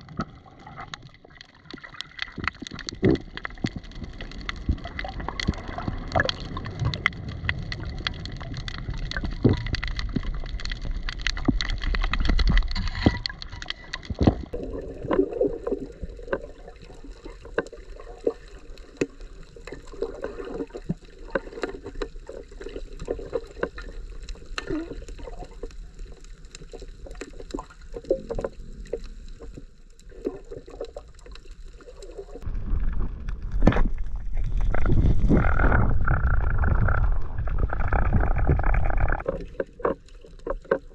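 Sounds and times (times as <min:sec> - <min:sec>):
muffled water movement: 0:00.0 - 0:40.9.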